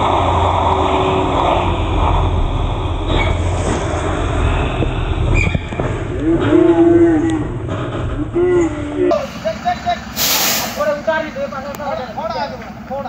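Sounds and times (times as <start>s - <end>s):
truck diesel engine running: 0.0s - 13.0s.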